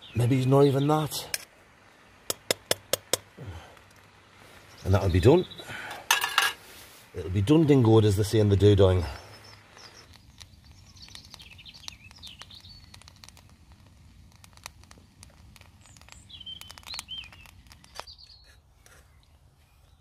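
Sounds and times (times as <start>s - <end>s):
faint warbling birdsong: 0.0s - 2.0s, 4.3s - 13.4s, 15.6s - 20.0s.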